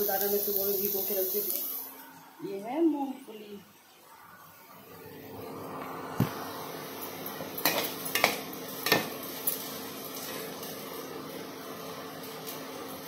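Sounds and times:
steady hiss: 0.0 - 13.0
metal pots and utensils clanking: 7.6 - 9.7.

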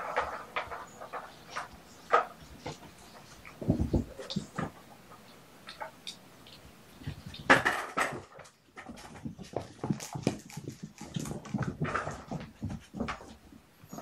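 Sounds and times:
kittens scuffling on carpet: 8.7 - 14.0.

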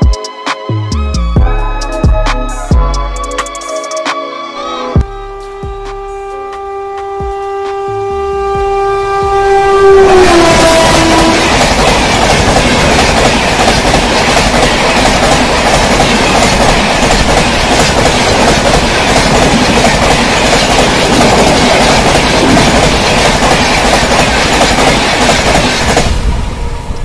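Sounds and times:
train coaches rushing past: 8.6 - 27.0
wheels clacking on rails: 10.4 - 26.3.

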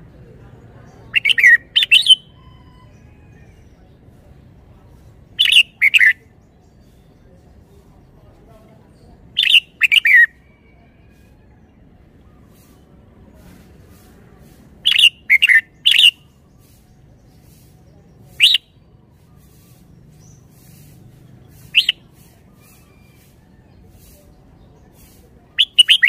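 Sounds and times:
bird singing whistled notes: 1.1 - 3.2, 5.4 - 7.2, 9.4 - 10.5, 14.8 - 16.8, 18.3 - 24.2, 25.6 - 26.0.

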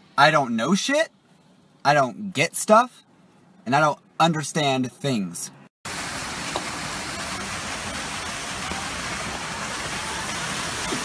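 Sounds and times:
fountain water splashing: 5.9 - 11.0.

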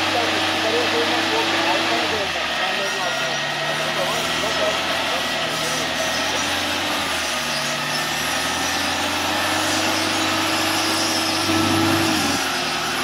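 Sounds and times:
engine and winch under load: 0.0 - 13.0.

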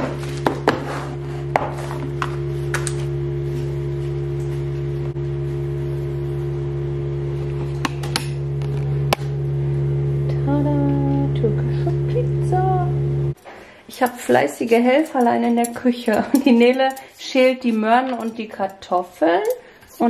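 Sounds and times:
low hum of held tones: 0.0 - 13.4.

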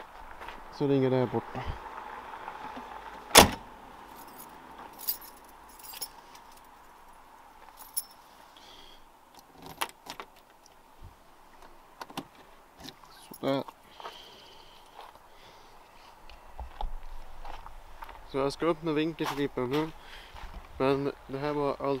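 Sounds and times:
car door slamming: 3.3 - 3.7
keys jingling: 4.2 - 6.7, 7.8 - 8.2.

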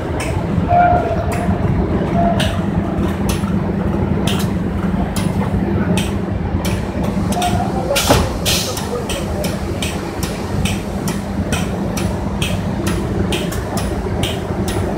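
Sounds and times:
conveyor machine hum: 0.0 - 14.9
sharp hissy clicks: 6.7 - 13.8.

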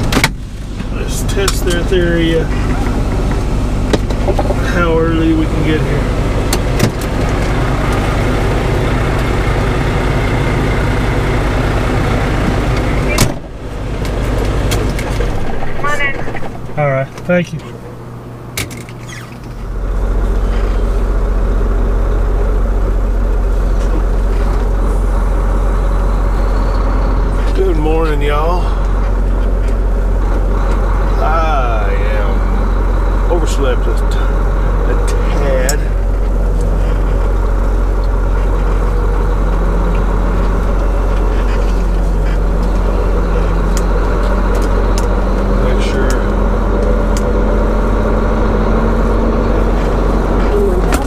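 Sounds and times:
truck diesel engine rumbling: 0.0 - 51.0.

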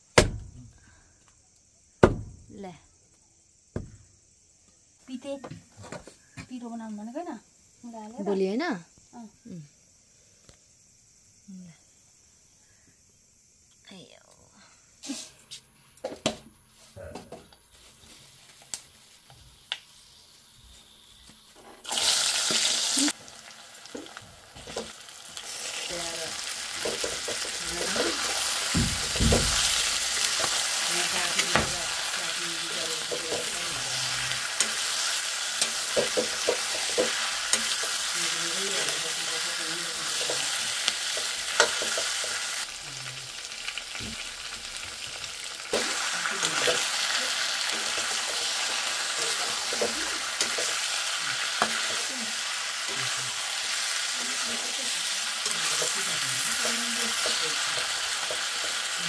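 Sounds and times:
meat sizzling in hot oil: 18.0 - 59.0.

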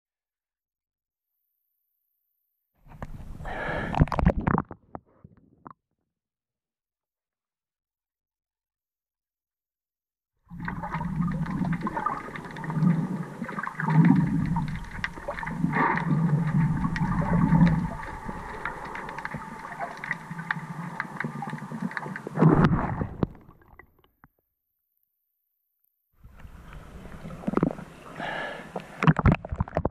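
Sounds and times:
muffled underwater rush: 10.5 - 24.0, 26.2 - 29.9
clicks and crackles: 11.3 - 24.4.

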